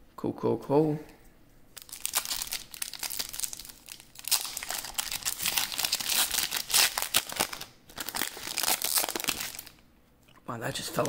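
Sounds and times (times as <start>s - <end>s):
foil wrapper crinkling and tearing: 1.8s - 9.8s.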